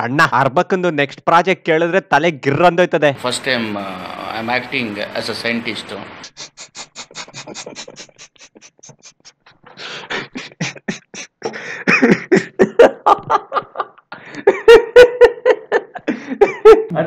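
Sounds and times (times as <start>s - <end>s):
man laughing: 6.8s - 16.9s.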